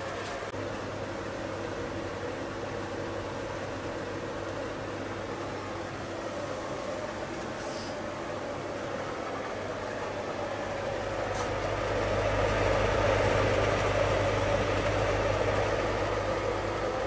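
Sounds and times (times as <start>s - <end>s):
electric blower motor hum: 10.7s - 17.0s.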